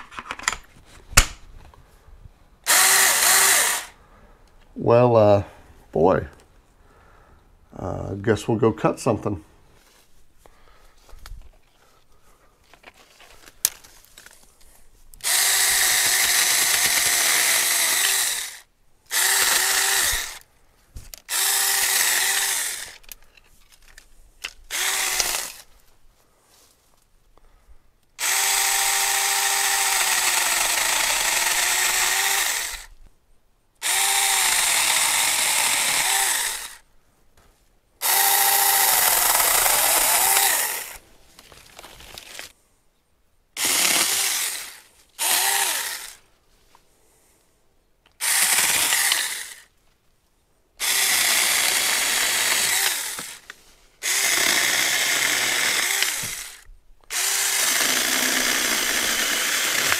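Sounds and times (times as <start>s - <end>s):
electric chainsaw cutting branches: 2.6s - 4.0s, 15.2s - 20.5s, 21.2s - 23.2s, 24.7s - 25.7s, 28.2s - 32.9s, 33.8s - 36.8s, 38.0s - 41.0s, 43.6s - 46.2s, 48.2s - 49.7s, 50.8s - 59.9s.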